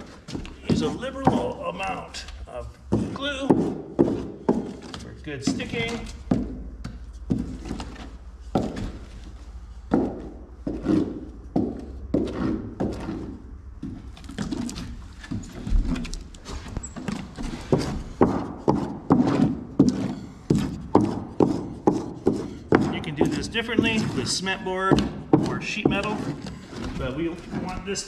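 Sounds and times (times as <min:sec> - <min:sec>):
wooden block scraping plywood: 0:10.6 - 0:13.4, 0:17.4 - 0:28.0.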